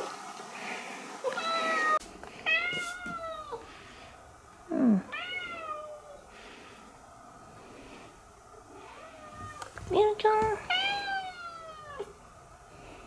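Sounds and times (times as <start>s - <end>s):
cat meowing: 1.2s - 3.6s, 5.1s - 6.2s, 8.8s - 9.7s, 10.7s - 12.1s.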